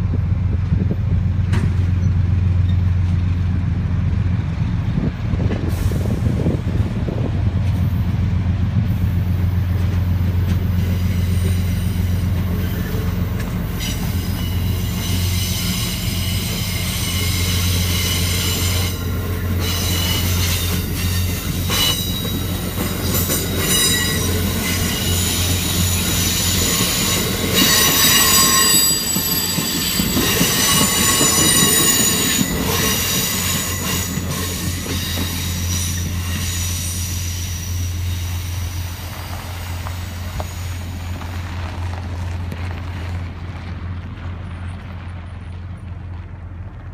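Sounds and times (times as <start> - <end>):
train wheels squealing on rails: 1.4 - 3.2, 5.5 - 6.9, 8.8 - 41.9.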